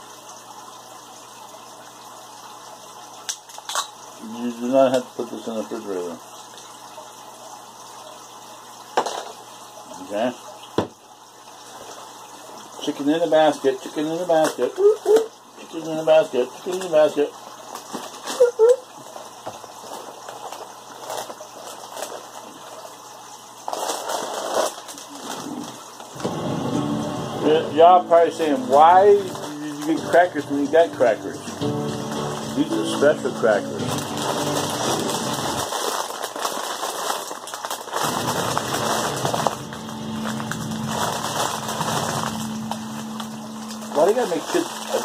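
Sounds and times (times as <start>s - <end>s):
plastic bag crinkling and rustling: 17.7s - 23.0s, 23.6s - 26.3s, 28.2s - 30.8s, 32.6s - 45.0s.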